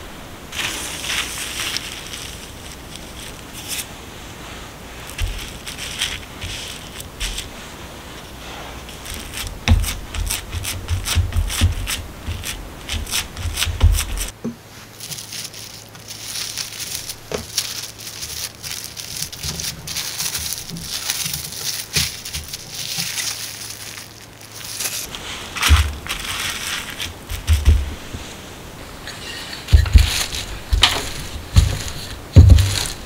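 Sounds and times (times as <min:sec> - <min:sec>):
plastic wrap crinkling: 0:00.5 - 0:33.0
dough thumps: 0:08.9 - 0:15.2, 0:25.6 - 0:28.1, 0:29.7 - 0:33.0.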